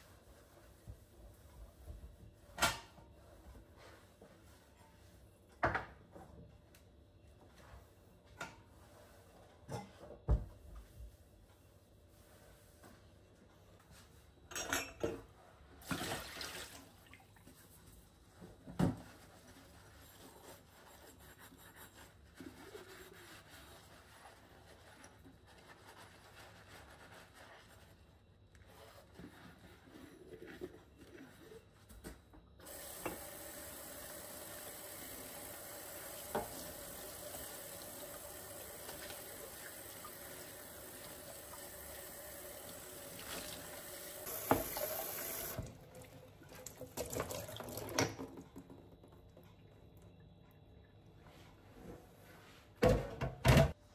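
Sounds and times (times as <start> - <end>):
sponge scrubbing a cup: 19.0 - 31.9
tap water running into sink: 32.7 - 49.8.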